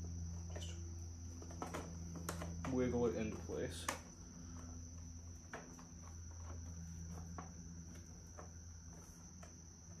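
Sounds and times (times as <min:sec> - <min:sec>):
crickets trilling: 0:00.0 - 0:10.0
clicks and taps of plastic panels: 0:03.7 - 0:04.2.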